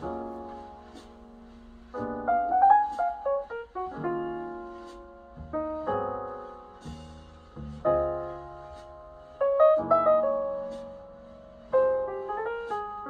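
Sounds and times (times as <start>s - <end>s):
piano music through speakers: 0.0s - 13.0s.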